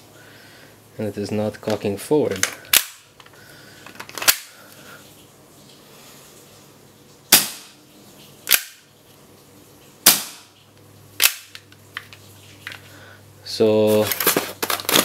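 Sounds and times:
pistol slide clacking: 8.5s - 8.8s, 11.2s - 11.6s.

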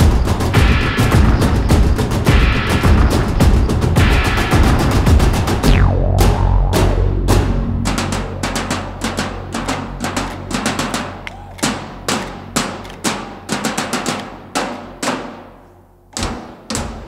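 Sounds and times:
drum-heavy music: 0.0s - 11.0s.

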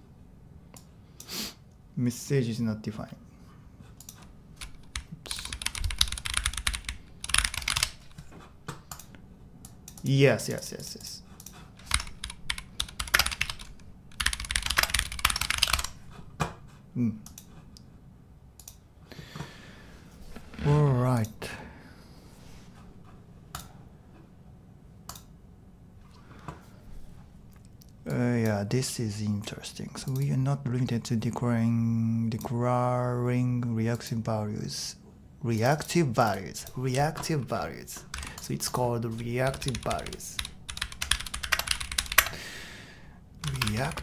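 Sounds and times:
low steady room hum: 0.0s - 44.0s
keyboard typing: 4.0s - 9.2s, 11.4s - 16.0s, 36.3s - 42.4s, 43.4s - 44.0s.

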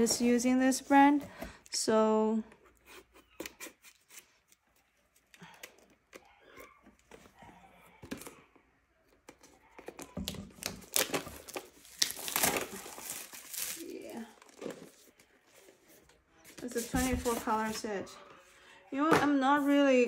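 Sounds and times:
plastic shrink wrap crinkling: 9.6s - 15.2s.

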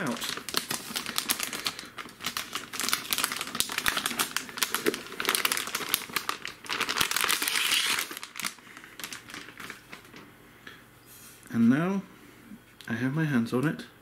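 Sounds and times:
plastic bag crinkling: 0.0s - 10.3s.

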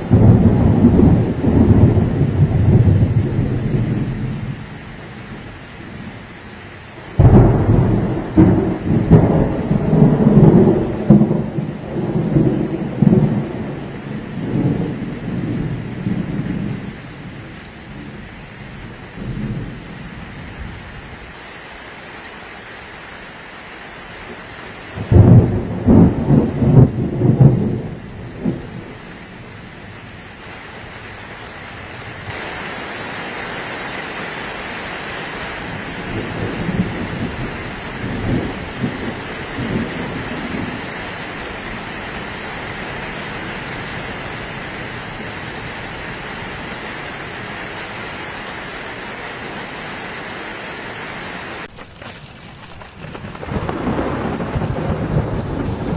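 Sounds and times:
thunder rumbling: 0.0s - 6.2s, 7.1s - 20.8s, 25.0s - 30.4s, 35.6s - 46.8s, 51.6s - 55.9s
heavy rain on a plastic roof: 0.0s - 55.9s.

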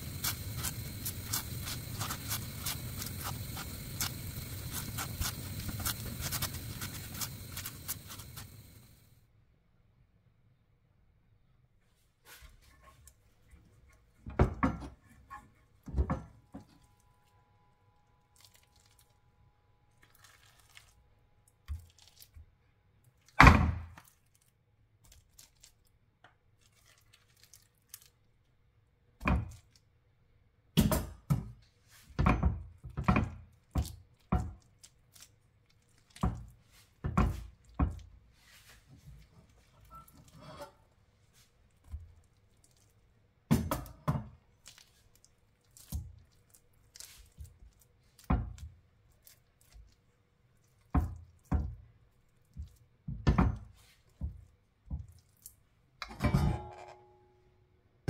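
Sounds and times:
spatula knocking and scraping: 0.0s - 8.8s, 36.0s - 42.9s, 43.5s - 57.0s.

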